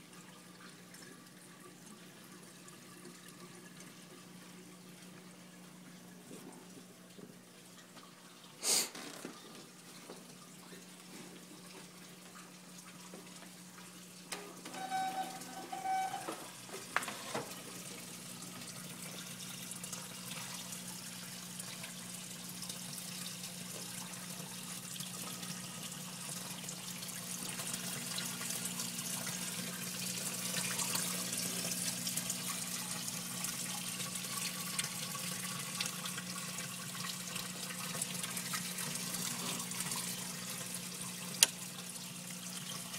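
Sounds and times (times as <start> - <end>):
water splashing and trickling: 0.0 - 42.9
brief squeaks: 14.8 - 16.5.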